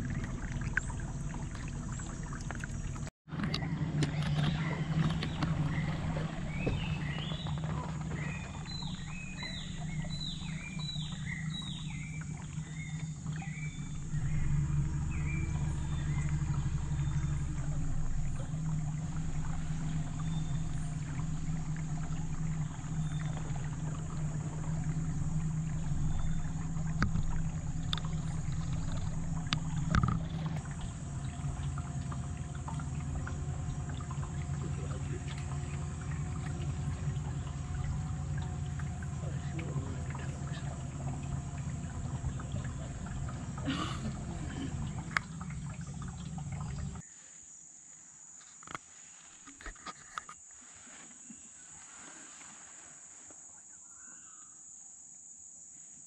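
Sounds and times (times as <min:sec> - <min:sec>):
outboard motor running: 0:00.0 - 0:47.0.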